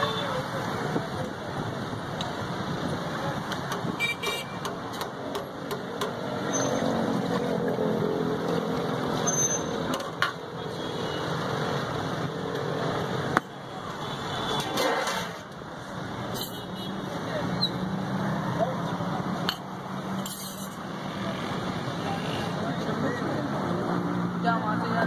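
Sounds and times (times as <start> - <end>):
street traffic noise: 0.0 - 25.0
voices: 16.4 - 25.0.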